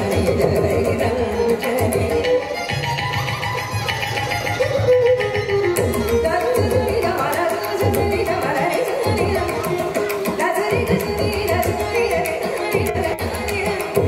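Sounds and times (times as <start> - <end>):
woman singing: 0.0 - 2.5, 6.1 - 14.0
violin: 0.0 - 14.0.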